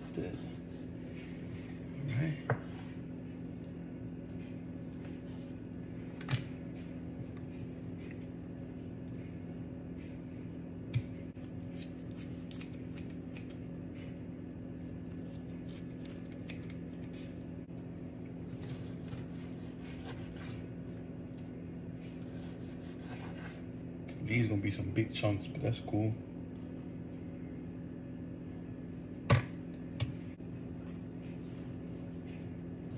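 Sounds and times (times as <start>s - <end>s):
steady low hum: 0.0s - 32.9s.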